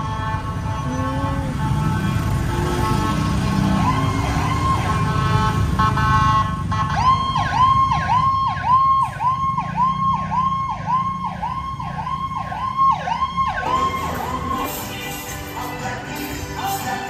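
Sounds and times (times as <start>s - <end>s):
emergency siren wailing and yelping: 0.0s - 14.9s
low traffic rumble: 0.0s - 17.0s.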